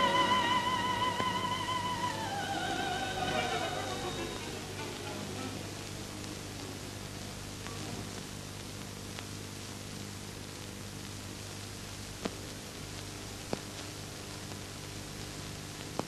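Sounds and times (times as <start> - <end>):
film soundtrack hiss and hum: 0.0 - 16.0
film print crackle clicks: 6.2 - 16.0.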